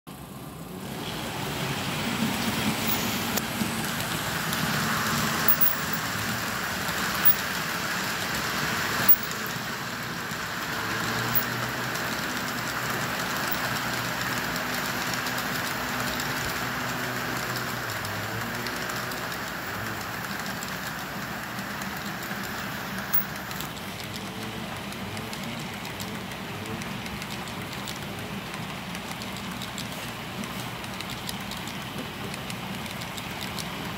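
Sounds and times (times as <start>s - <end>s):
locomotive engines droning: 0.1s - 33.9s
train wheels rumbling on rails: 0.1s - 33.9s
sharp clicks of rails: 0.6s - 33.9s.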